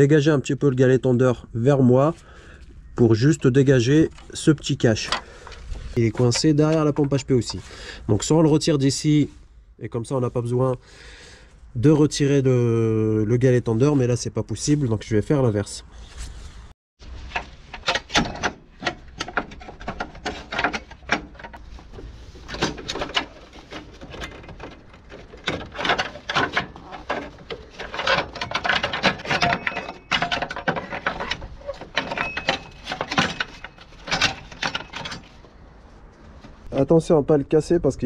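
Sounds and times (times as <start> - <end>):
tools clicking and scraping: 17.2 - 35.6.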